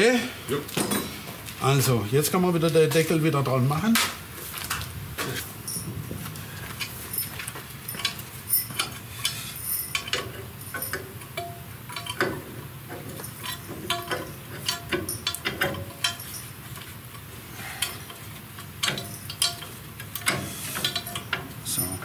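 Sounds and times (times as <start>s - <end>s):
metal tools clinking: 0.7s - 1.3s, 5.6s - 6.0s, 6.8s - 22.0s.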